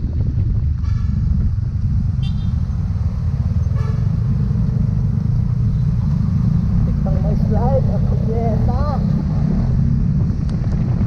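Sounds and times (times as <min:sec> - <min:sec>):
motorcycle engine rumble: 0:00.0 - 0:11.0
horn toots: 0:00.8 - 0:01.5, 0:02.2 - 0:02.6, 0:03.6 - 0:04.3.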